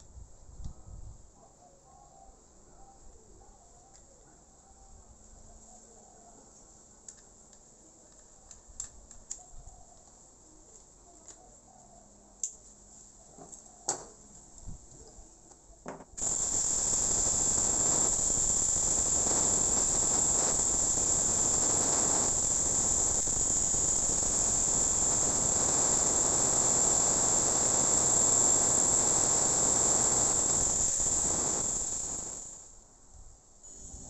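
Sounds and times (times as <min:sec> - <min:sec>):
angle grinder grinding wood: 0:16.2 - 0:32.6.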